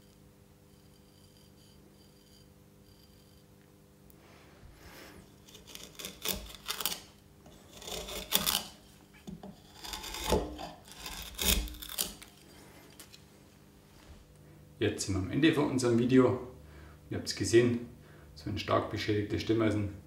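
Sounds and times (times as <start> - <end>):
steel chisel scraping: 0.0 - 3.5, 5.1 - 13.2
low steady hum: 0.0 - 20.0.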